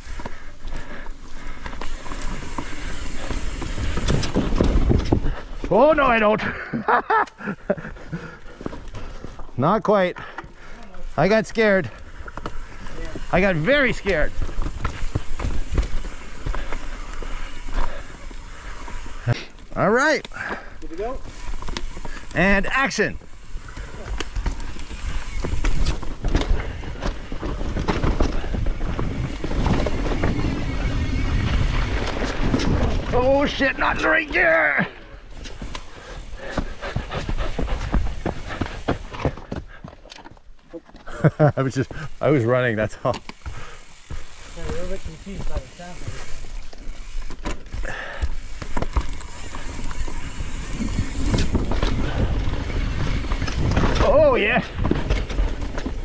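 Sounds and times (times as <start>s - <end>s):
bike rattling: 0.0s - 56.0s
bike tyres clattering on stone: 12.2s - 33.2s, 42.8s - 56.0s.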